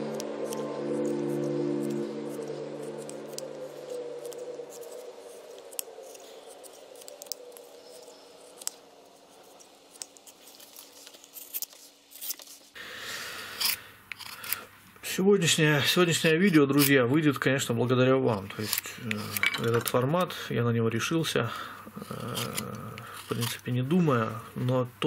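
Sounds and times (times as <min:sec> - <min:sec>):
background music: 0:00.0 - 0:07.3.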